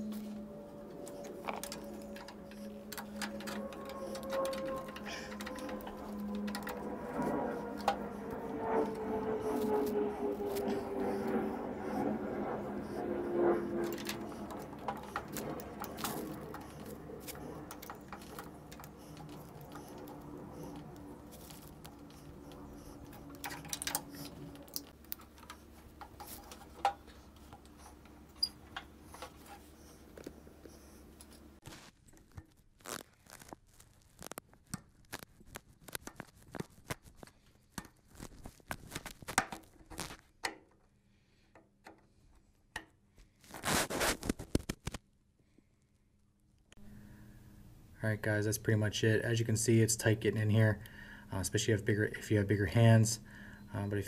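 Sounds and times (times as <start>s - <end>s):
steady background hum: 0.0s - 31.7s, 46.8s - 54.0s
clicks scrapes and rustles of hose work: 0.0s - 45.0s.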